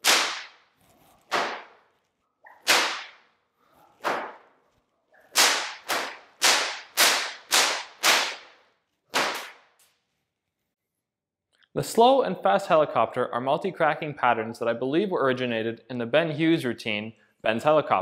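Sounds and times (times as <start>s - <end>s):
whip cracking: 0.0s - 0.7s, 1.3s - 1.8s, 2.5s - 3.3s, 4.0s - 4.5s, 5.3s - 9.8s.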